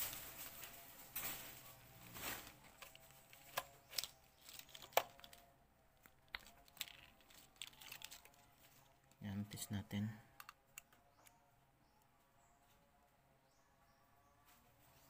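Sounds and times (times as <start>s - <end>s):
soft clicks and rustles of test leads: 0.0s - 9.3s.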